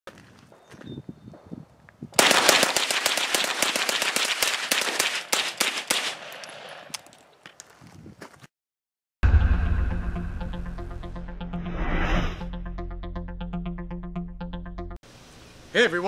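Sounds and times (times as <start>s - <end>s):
rapid gunshots: 2.2s - 6.3s.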